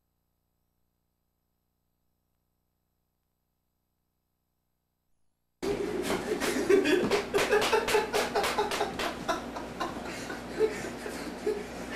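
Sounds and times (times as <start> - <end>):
people laughing: 5.6 - 11.9.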